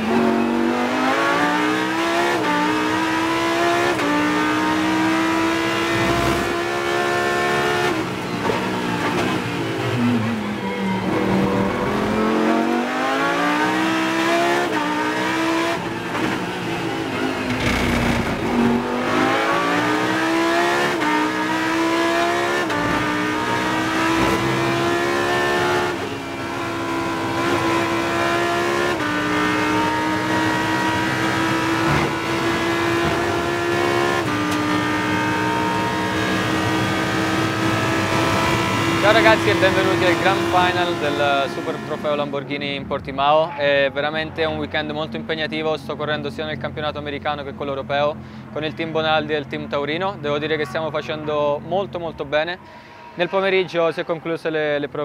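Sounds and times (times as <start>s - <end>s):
race car engine accelerating: 0.0s - 42.5s
gear upshifts: 16.1s - 21.3s, 26.9s - 41.1s.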